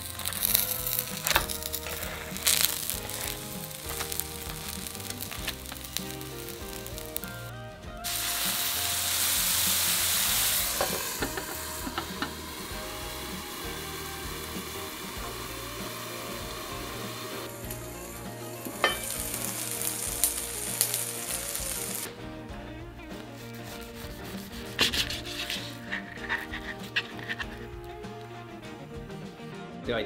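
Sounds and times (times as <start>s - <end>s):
dumplings sizzling in a frying pan: 0.0s - 7.3s, 8.0s - 22.1s
water hissing on hot pan: 0.0s - 22.3s, 23.1s - 28.4s.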